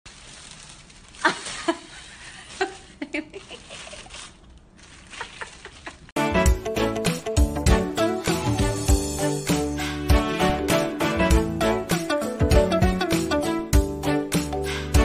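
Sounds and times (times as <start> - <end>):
plastic bag crinkling: 0.1 - 6.2
loud music: 6.2 - 15.0.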